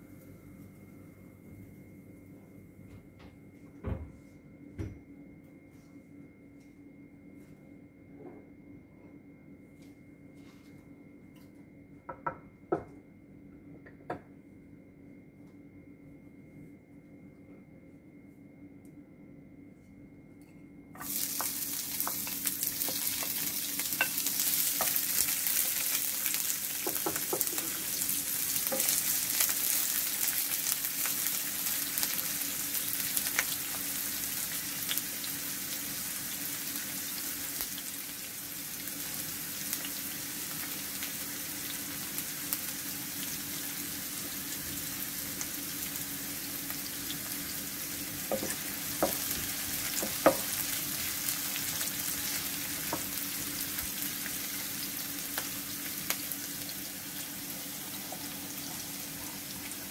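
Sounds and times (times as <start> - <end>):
onions sizzling in oil: 21.0 - 59.9
wooden spatula knocking pan: 26.8 - 27.8, 48.3 - 49.3, 50.0 - 50.5.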